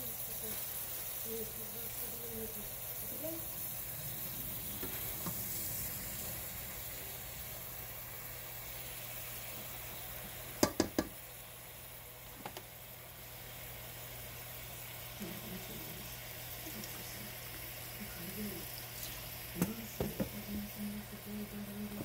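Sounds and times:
spinach sizzling in oil: 0.0 - 22.0
spatula knocking against pan: 10.6 - 11.2.

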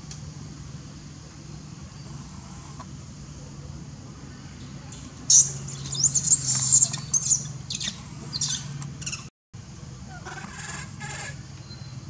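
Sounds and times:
young monkey squealing: 5.3 - 9.3.

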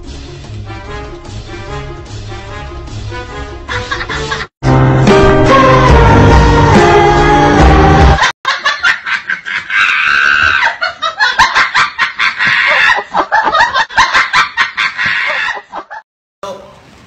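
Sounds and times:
people laughing hard: 3.7 - 4.5, 8.2 - 16.0.

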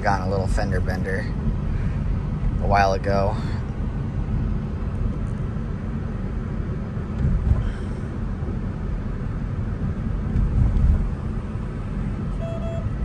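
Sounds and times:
road and tyre rumble: 0.0 - 13.0
brief beep: 12.4 - 12.9.

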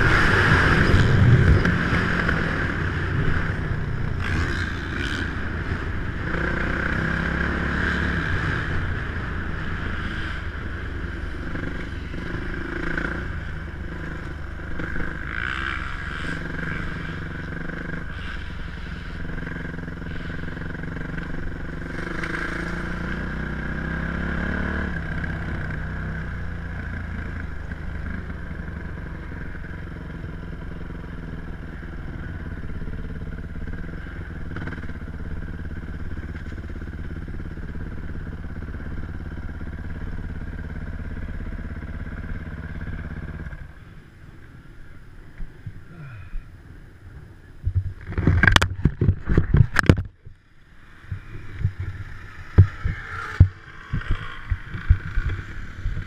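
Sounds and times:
dirt bike engine running: 0.0 - 43.9, 47.6 - 56.0
knocks and rubs on microphone: 47.6 - 50.2.

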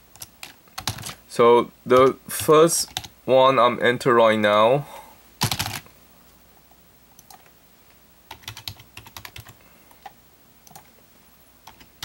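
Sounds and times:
typing on computer keyboard: 0.1 - 1.2, 2.9 - 3.1, 5.4 - 5.8, 8.3 - 10.1, 10.7 - 10.9, 11.6 - 12.0.

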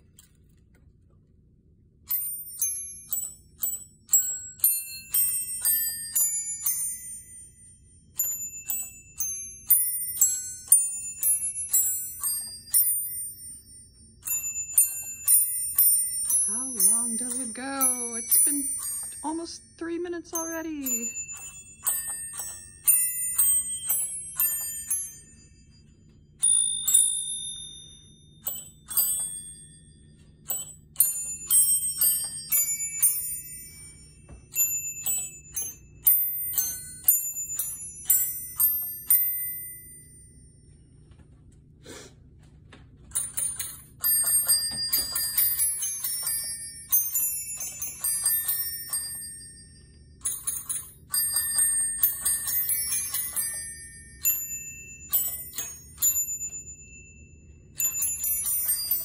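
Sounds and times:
small brass bells ringing a tune: 2.1 - 40.8, 43.1 - 59.0.

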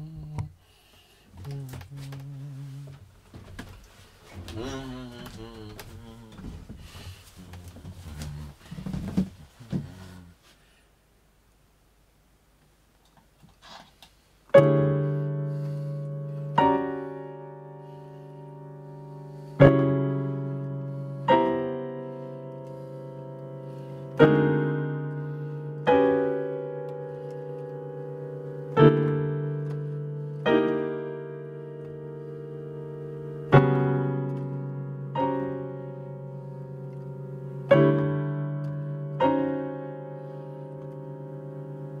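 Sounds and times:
digital piano chords: 14.5 - 42.0.

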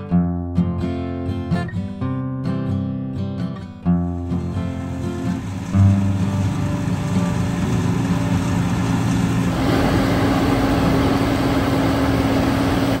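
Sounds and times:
combine harvester running: 4.1 - 13.0.

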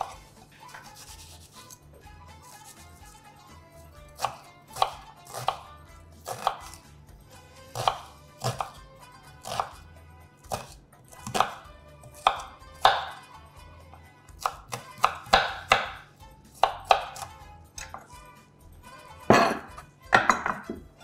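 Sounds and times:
knife chopping on wooden board: 0.0 - 1.8, 4.1 - 8.8, 9.4 - 9.8, 10.5 - 13.2, 14.4 - 16.0, 16.6 - 18.1, 19.3 - 20.8.

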